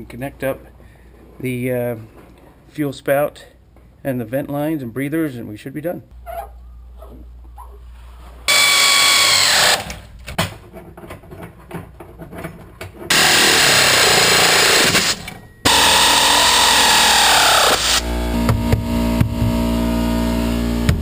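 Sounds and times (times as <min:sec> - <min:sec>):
power drill driving bolts: 0:08.5 - 0:10.1, 0:13.1 - 0:18.0.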